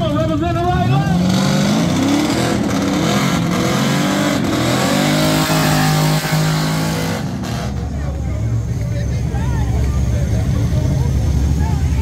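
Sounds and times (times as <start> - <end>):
race car engine accelerating: 1.0 - 8.9.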